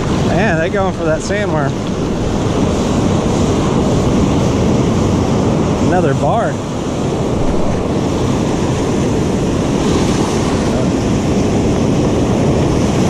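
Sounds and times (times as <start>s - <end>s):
ocean surf breaking: 0.0s - 13.0s
wind buffeting microphone: 0.0s - 13.0s.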